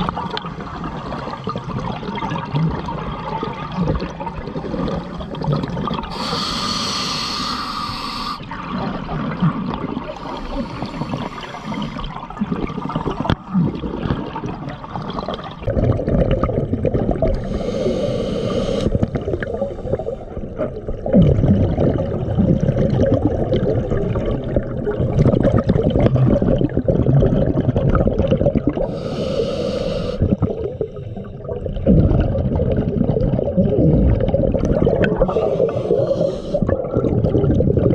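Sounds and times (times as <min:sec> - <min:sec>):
bubbling exhalations: 0:00.0 - 0:37.9
hissing regulator inhalations: 0:06.1 - 0:08.4, 0:10.2 - 0:12.1, 0:17.4 - 0:20.4, 0:28.8 - 0:31.4, 0:35.2 - 0:36.7.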